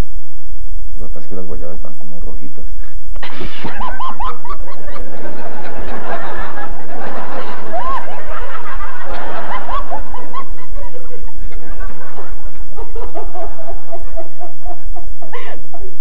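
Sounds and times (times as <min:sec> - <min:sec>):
man and woman laughing: 0:03.2 - 0:15.9.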